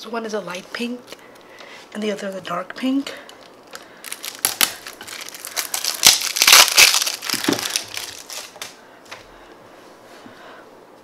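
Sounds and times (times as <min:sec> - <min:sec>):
plastic film crinkling: 0:03.3 - 0:08.8.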